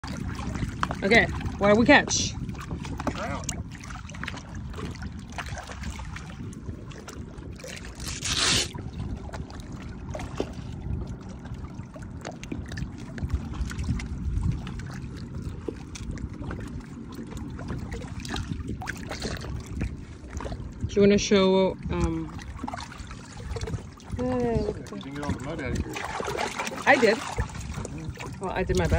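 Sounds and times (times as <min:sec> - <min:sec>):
water splashing around boat hull: 0:00.0 - 0:28.9.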